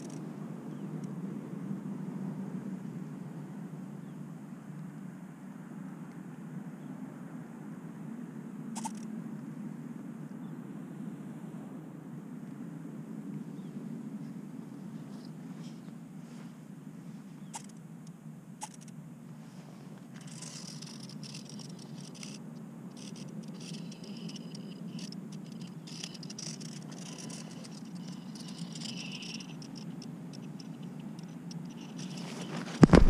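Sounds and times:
steady low hum: 0:00.0 - 0:33.0
faint high-pitched crackling: 0:17.2 - 0:33.0
camera knock and rustle: 0:32.0 - 0:33.0.

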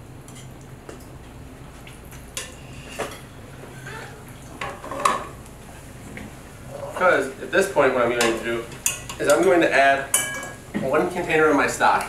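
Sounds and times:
steady low hum: 0:00.0 - 0:12.0
metal pot and utensils clinking: 0:08.2 - 0:10.6.

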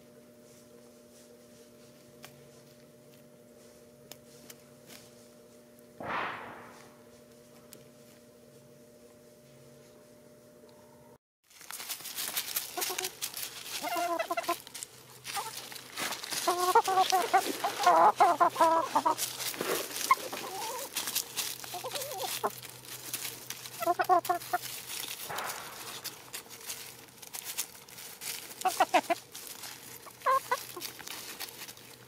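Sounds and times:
dry leaf litter rustling: 0:11.4 - 0:32.0
hens clucking: 0:12.6 - 0:26.6, 0:27.7 - 0:32.0.

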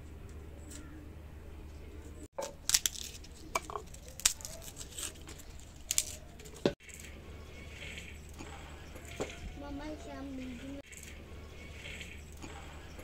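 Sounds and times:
garlic skins crackling: 0:02.4 - 0:06.7.

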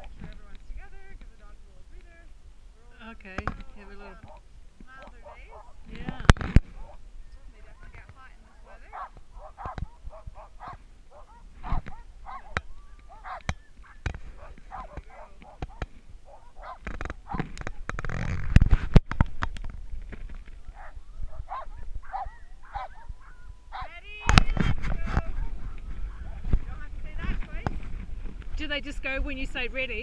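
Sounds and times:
dogs yelping and howling: 0:08.6 - 0:17.5, 0:20.6 - 0:23.9.

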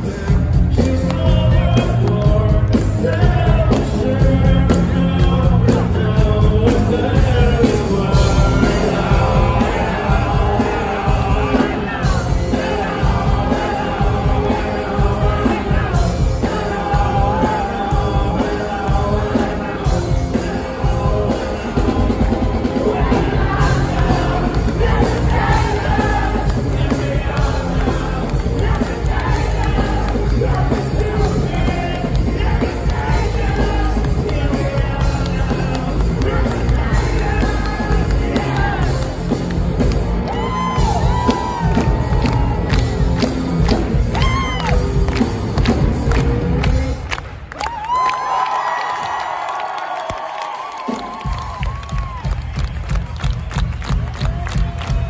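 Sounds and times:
man singing: 0:00.0 - 0:39.4
live folk-rock band playing: 0:00.0 - 0:47.0.

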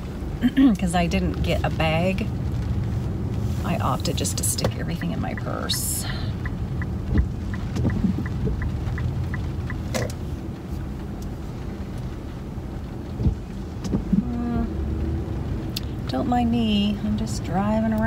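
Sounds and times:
engine and tyre rumble: 0:00.0 - 0:18.0
rain hissing on car: 0:00.0 - 0:18.0
light regular ticking: 0:04.4 - 0:12.2.

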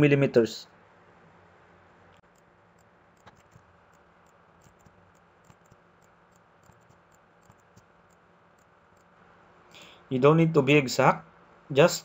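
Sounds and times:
computer mouse clicks: 0:02.2 - 0:09.1.

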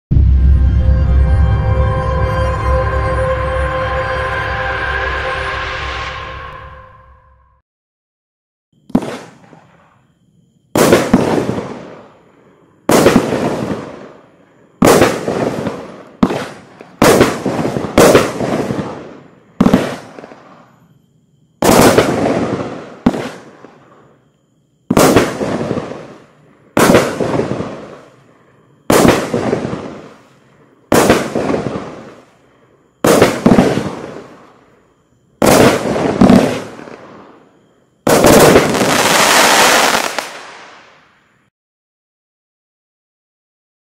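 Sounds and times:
firework cake bangs: 0:24.9 - 0:26.1, 0:33.0 - 0:34.1.

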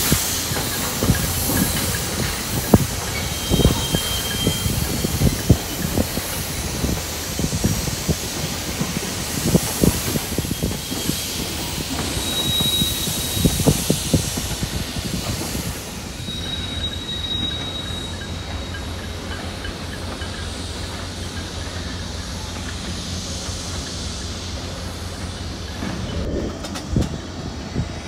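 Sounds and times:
steel wheels clacking over rail joints: 0:00.0 - 0:28.0
high wheel squeal: 0:00.4 - 0:06.9, 0:09.6 - 0:15.1, 0:16.0 - 0:22.6.

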